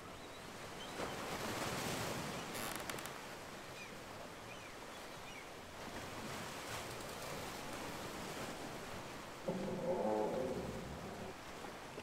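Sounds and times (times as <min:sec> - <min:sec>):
ocean waves washing: 0:05.6 - 0:12.0.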